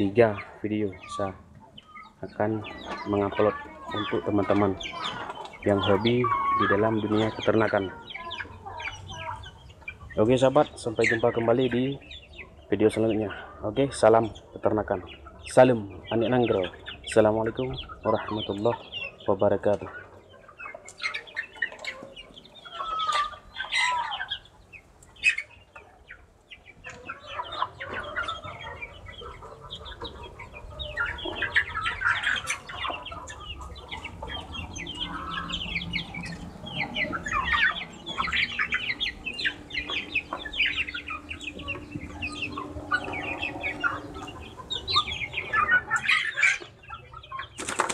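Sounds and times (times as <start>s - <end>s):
chickens clucking: 0.0s - 47.9s.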